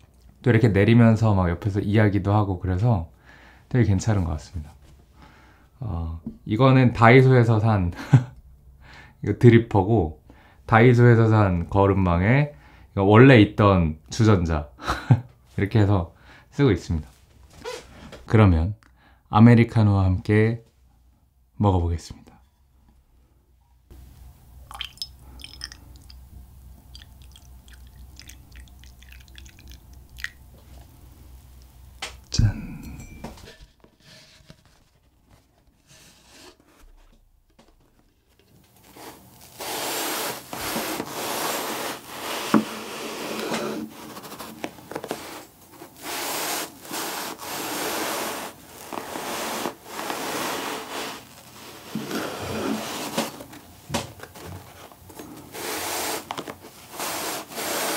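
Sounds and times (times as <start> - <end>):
coffee pouring into mug: 24.6 - 26.2, 26.8 - 30.5.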